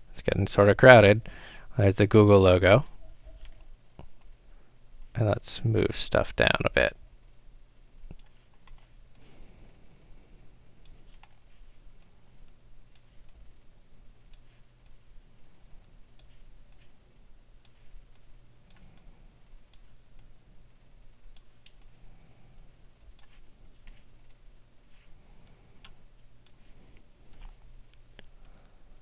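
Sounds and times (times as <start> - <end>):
low steady hum: 0.0 - 29.0
computer mouse clicks: 8.1 - 9.3, 17.6 - 19.1, 21.3 - 22.0, 23.1 - 24.4, 25.8 - 28.6.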